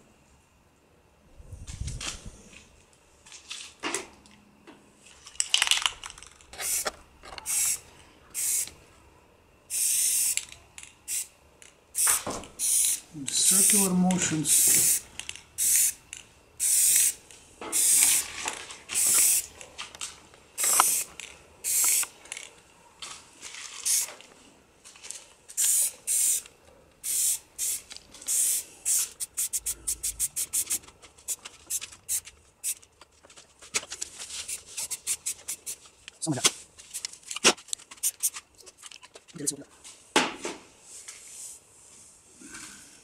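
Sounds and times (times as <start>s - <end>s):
spray paint can hissing: 6.6s - 7.8s, 8.4s - 8.8s, 9.7s - 11.3s, 11.9s - 16.0s, 16.6s - 18.3s, 18.9s - 19.5s, 20.6s - 22.1s, 23.8s - 24.1s, 25.6s - 32.9s, 34.4s - 35.9s, 36.8s - 38.4s.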